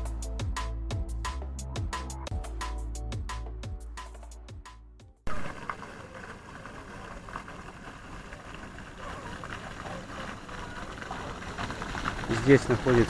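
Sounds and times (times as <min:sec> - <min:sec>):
fountain water splashing into pool: 0:05.3 - 0:13.0.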